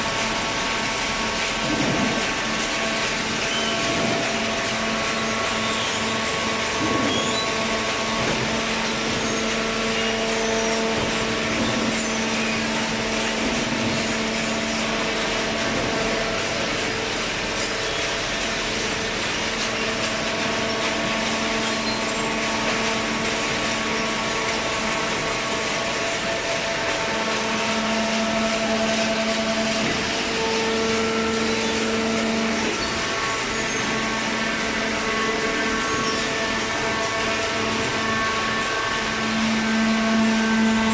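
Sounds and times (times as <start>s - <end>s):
baler mechanical hum: 0.0s - 40.9s.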